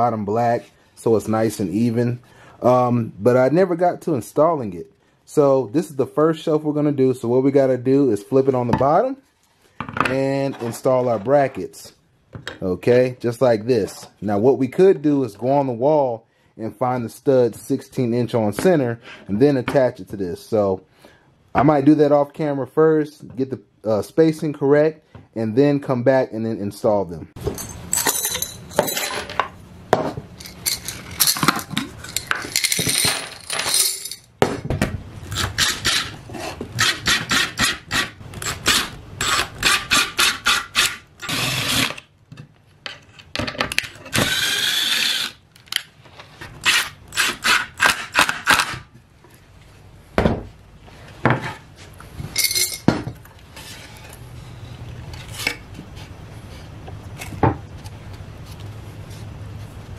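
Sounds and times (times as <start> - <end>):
screws rattling in glass jar: 27.6 - 29.1, 30.4 - 34.3.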